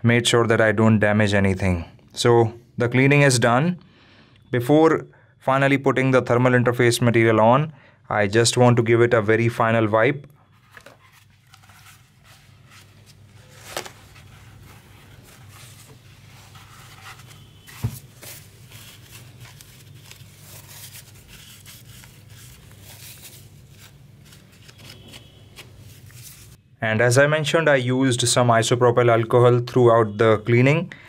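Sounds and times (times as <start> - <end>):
paper towel rubbing and crinkling: 10.5 - 26.6.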